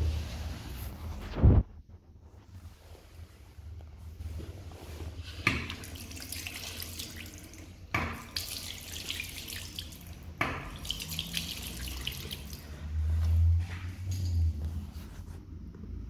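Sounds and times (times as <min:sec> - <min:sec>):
water dripping: 0:05.4 - 0:13.4
water gushing into basin: 0:05.4 - 0:13.4.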